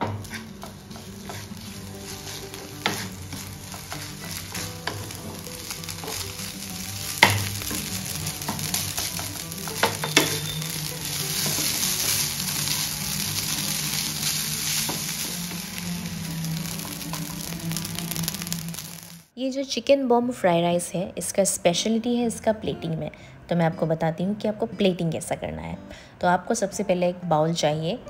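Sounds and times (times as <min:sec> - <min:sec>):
wooden spoon knocking on pan: 0:00.0 - 0:01.5, 0:02.5 - 0:05.4, 0:07.1 - 0:10.7
rice sizzling in a frying pan: 0:00.0 - 0:19.3.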